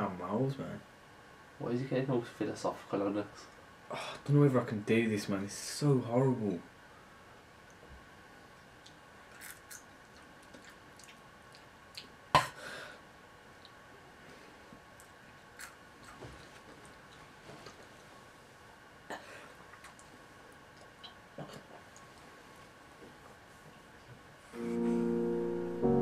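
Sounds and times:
crunchy chewing: 0:08.8 - 0:12.1, 0:15.0 - 0:17.9.

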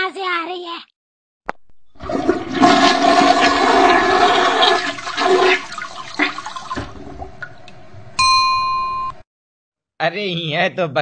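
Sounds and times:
toilet flushing: 0:01.9 - 0:08.1.

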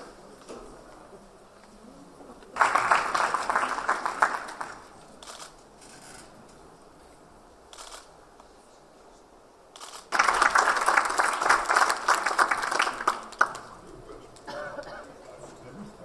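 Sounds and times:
audience applause: 0:02.5 - 0:05.4, 0:10.0 - 0:14.9.

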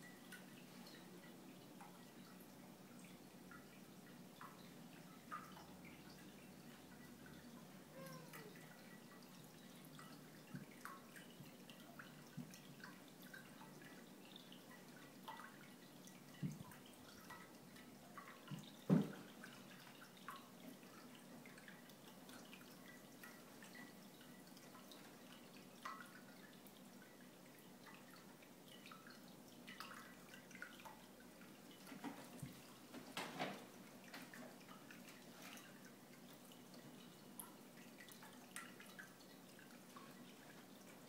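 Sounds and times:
thump: 0:18.9 - 0:19.2.

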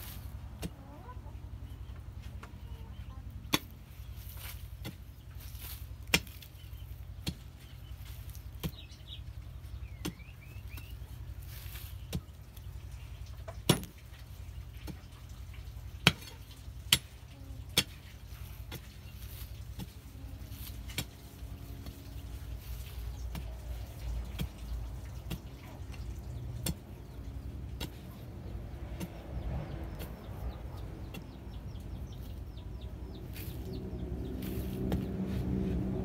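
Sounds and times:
metal bar knocking into earth: 0:13.6 - 0:14.0
low rumble: 0:25.9 - 0:36.0.

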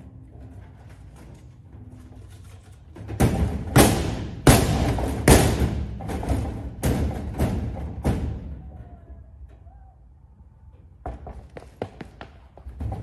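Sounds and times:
loud drum hits: 0:03.7 - 0:08.4.

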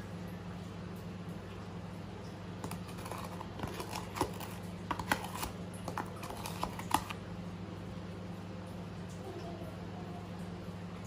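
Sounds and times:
low electrical hum: 0:00.0 - 0:11.0
spoon and containers clicking: 0:02.6 - 0:07.2.

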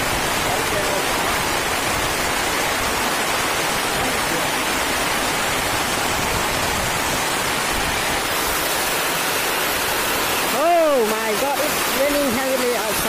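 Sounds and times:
heavy rain on a metal roof: 0:00.0 - 0:13.0.

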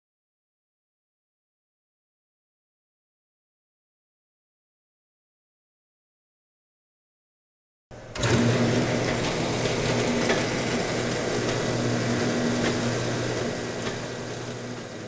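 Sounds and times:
machinery humming: 0:07.9 - 0:15.0
noisy mechanical wash: 0:07.9 - 0:15.0.

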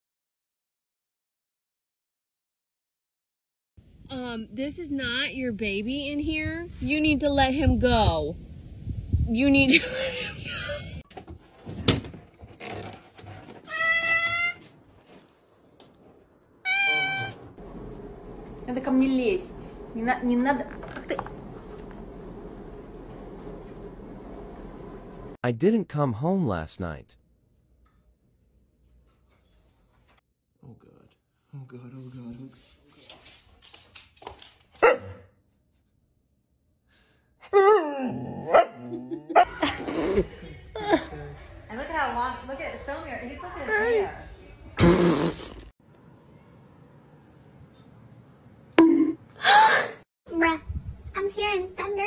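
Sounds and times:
cat meowing: 0:13.7 - 0:14.7, 0:16.6 - 0:17.4.

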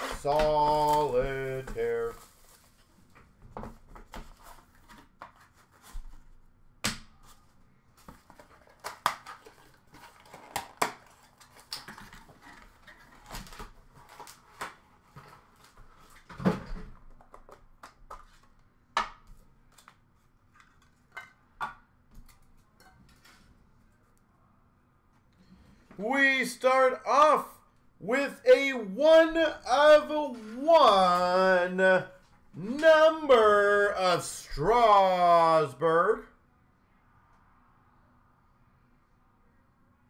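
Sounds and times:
cardboard and plastic cases handled: 0:08.0 - 0:18.6.

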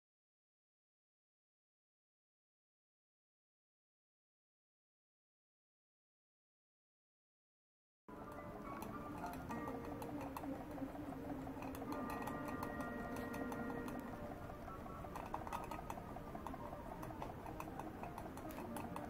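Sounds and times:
model steam engine ticking: 0:08.3 - 0:19.0.

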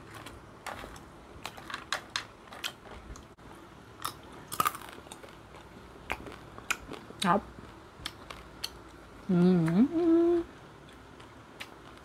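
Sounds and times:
crunchy fried fish being chewed: 0:00.0 - 0:09.2, 0:10.6 - 0:12.0.

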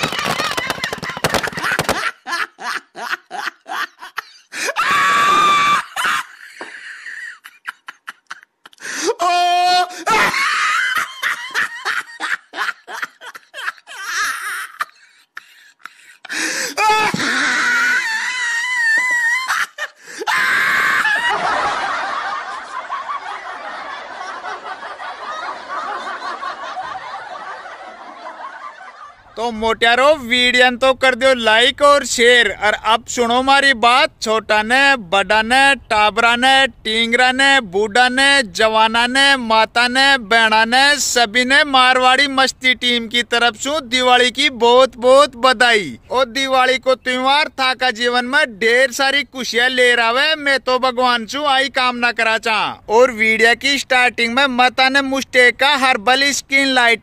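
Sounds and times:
firecrackers crackling: 0:00.0 - 0:02.1
person laughing: 0:00.0 - 0:08.9, 0:09.8 - 0:23.3
high-pitched scream: 0:04.8 - 0:06.0.

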